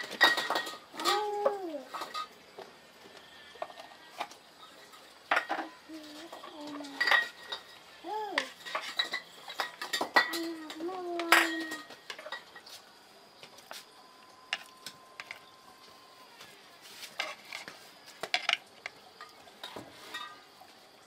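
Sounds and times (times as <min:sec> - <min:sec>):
utensils clinking against dishes: 0:00.0 - 0:02.4, 0:03.6 - 0:12.8, 0:19.2 - 0:20.5.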